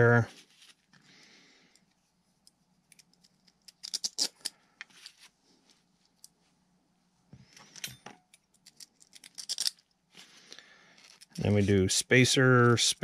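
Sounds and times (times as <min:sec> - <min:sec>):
metal hardware clinking: 0:07.6 - 0:09.8.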